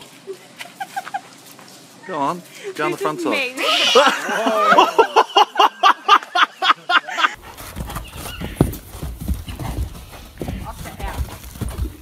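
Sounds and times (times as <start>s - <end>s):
woman laughing hard: 0.3s - 1.3s, 3.6s - 7.4s
horse hooves thudding on sand: 7.4s - 12.0s.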